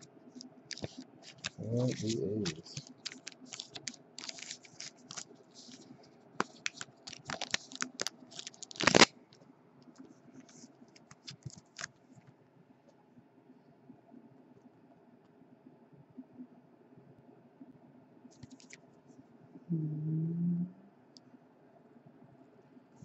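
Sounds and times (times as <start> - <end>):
plastic card sleeve rustling: 0.0 - 9.1, 10.4 - 12.0, 18.4 - 18.8.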